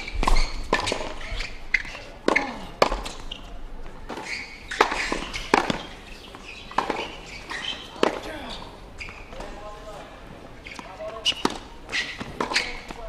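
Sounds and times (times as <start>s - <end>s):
tennis ball struck by rackets: 0.0s - 3.3s, 4.1s - 8.3s
tennis ball bouncing on court: 0.0s - 3.4s, 4.1s - 8.3s, 10.7s - 13.0s.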